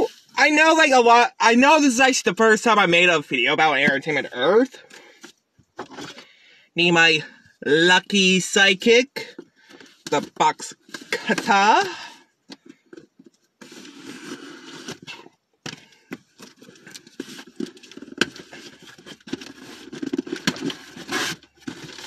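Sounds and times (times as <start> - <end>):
cardboard scraping and rustling: 12.7 - 15.3, 16.2 - 22.0
box cutter slitting tape: 13.6 - 15.1, 19.4 - 22.0.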